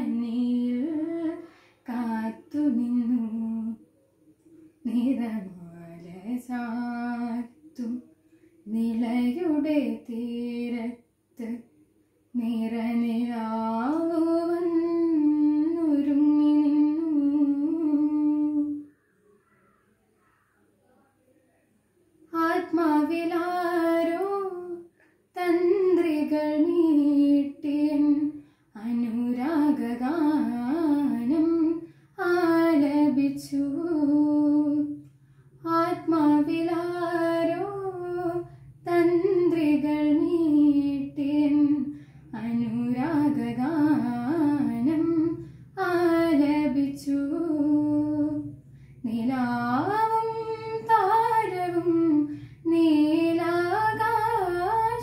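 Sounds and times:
girl singing unaccompanied: 0:22.3 - 0:55.0.

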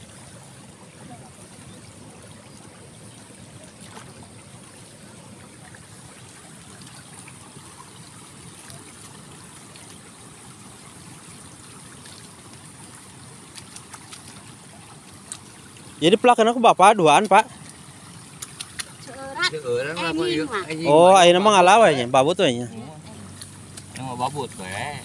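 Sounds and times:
trickle of running water: 0:00.0 - 0:25.0.

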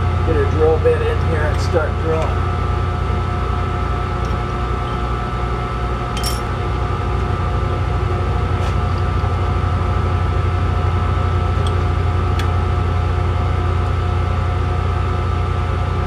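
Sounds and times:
steady machine hum: 0:00.0 - 0:16.0
metal clinks: 0:06.2 - 0:06.5.

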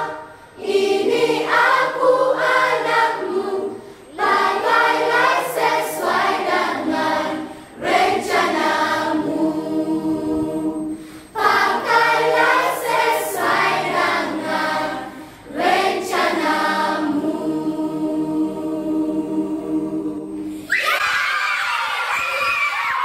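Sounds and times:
children's choir singing: 0:00.0 - 0:20.8
excited shouting voices: 0:20.7 - 0:23.0.

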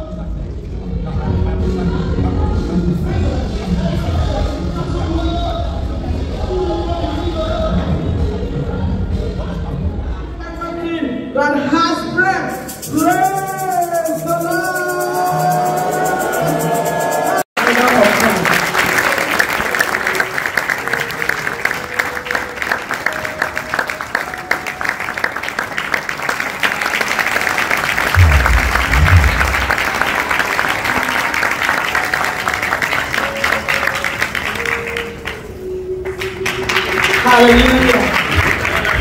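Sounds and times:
audience applauding: 0:15.2 - 0:39.0
low thumps: 0:28.2 - 0:29.8.

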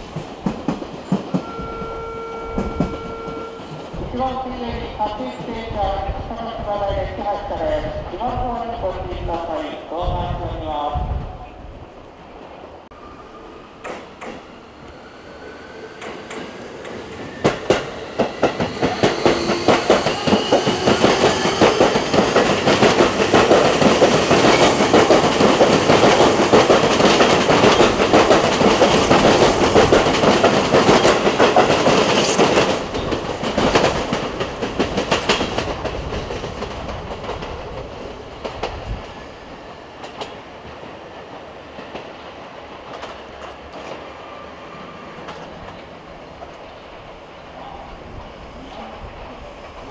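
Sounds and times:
train wheels clattering: 0:00.0 - 0:04.3, 0:13.8 - 0:14.5, 0:15.8 - 0:44.1
train inverter whine: 0:00.0 - 0:06.2, 0:11.5 - 0:41.1.

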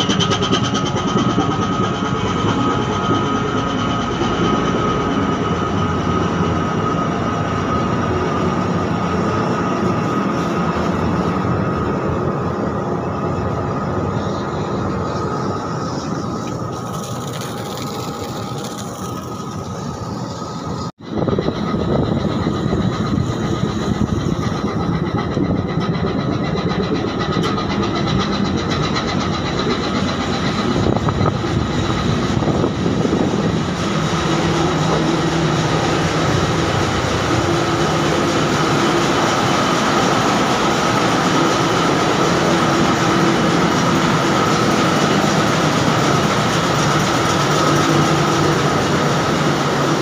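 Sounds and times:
ship engine rumbling: 0:00.0 - 0:50.0.

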